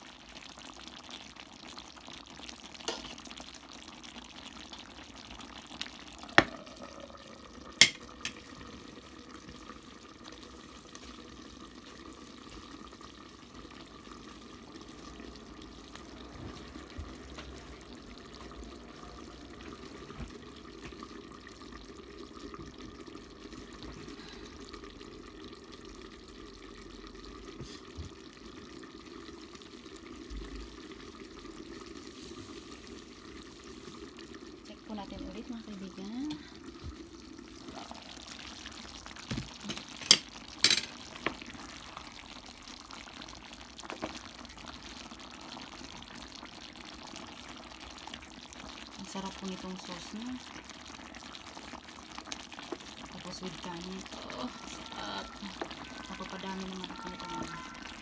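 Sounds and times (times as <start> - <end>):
sauce simmering and bubbling: 0.0 - 58.0.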